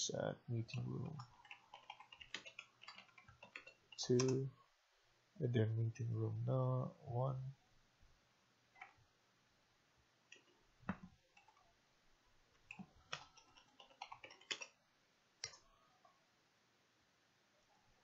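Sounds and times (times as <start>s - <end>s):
computer keyboard typing: 0.7s - 4.5s, 10.3s - 11.6s, 12.7s - 14.8s.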